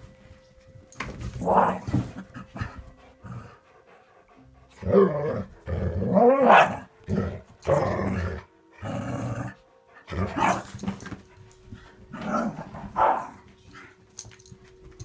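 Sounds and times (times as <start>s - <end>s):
dogs growling: 1.4s - 10.7s.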